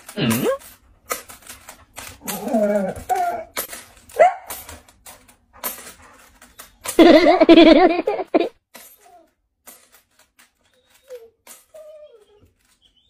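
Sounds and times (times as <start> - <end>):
dog whining and howling: 2.1 - 4.5, 10.6 - 13.0.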